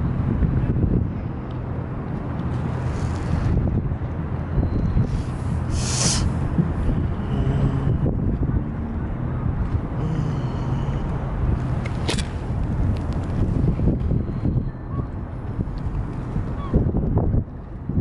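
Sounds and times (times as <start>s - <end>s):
boat engine drone: 0.0s - 16.4s
wind buffeting microphone: 0.0s - 18.0s
brief hiss: 5.7s - 6.3s.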